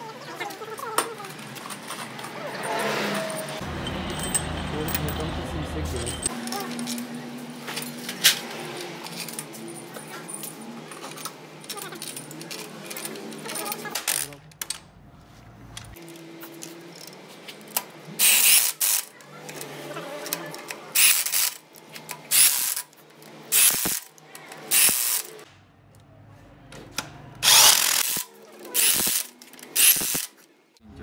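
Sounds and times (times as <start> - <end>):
power tool running in bursts: 27.4 - 30.3.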